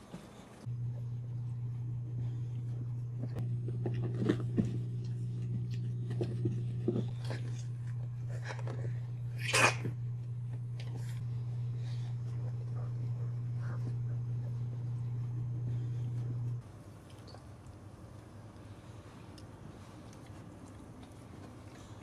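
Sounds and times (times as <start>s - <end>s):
steady low hum: 0.0s - 22.0s
dogs sniffing and snorting: 10.8s - 16.6s.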